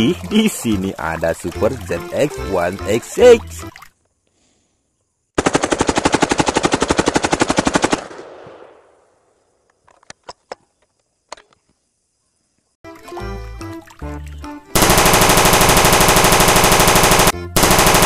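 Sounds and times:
submachine gun burst: 14.8s - 18.0s.

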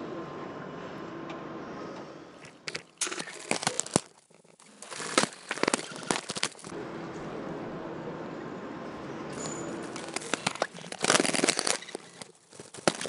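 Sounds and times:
plastic sheet crinkling: 2.6s - 6.7s, 9.7s - 13.0s.

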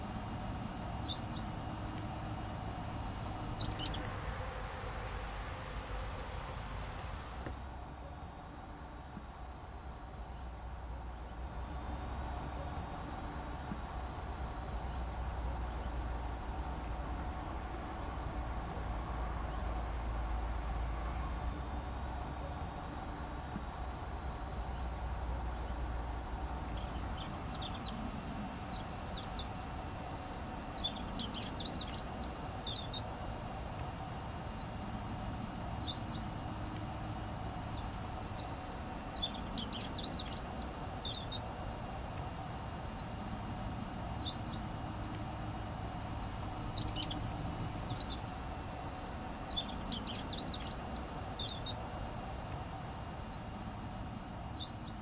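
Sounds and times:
small birds chirping: 0.0s - 6.0s, 24.6s - 55.0s
low background noise: 0.0s - 55.0s.

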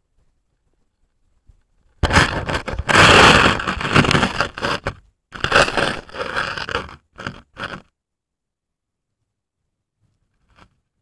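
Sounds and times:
camera scraping on ice: 2.0s - 7.9s.

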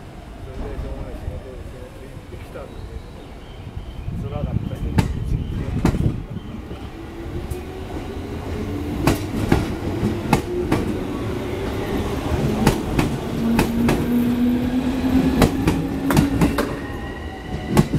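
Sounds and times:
train running rumble: 4.2s - 16.9s.

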